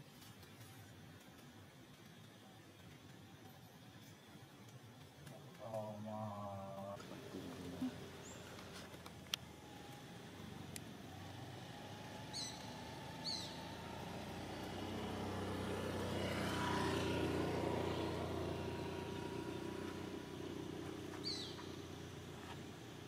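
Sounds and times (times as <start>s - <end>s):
vehicle passing by: 5.6s - 23.0s.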